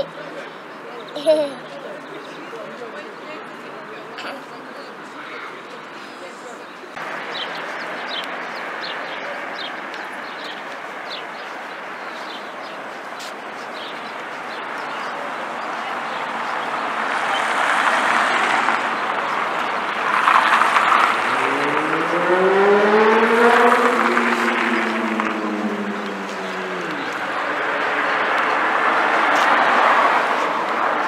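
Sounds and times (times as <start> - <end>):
cars driving past: 14.2 - 31.0
car engine revving: 16.8 - 31.0.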